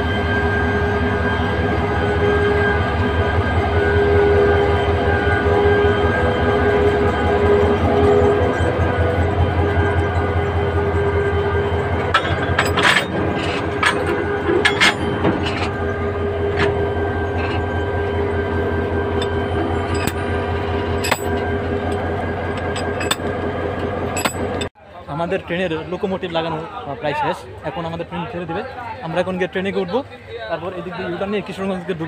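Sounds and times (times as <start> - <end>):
diesel locomotive idling: 0.0 - 32.0
metal coupler clanking: 12.0 - 17.7, 19.1 - 24.7.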